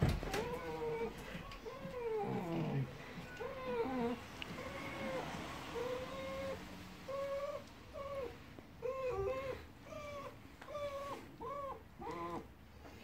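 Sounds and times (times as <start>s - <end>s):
dog whining: 0.1s - 12.6s.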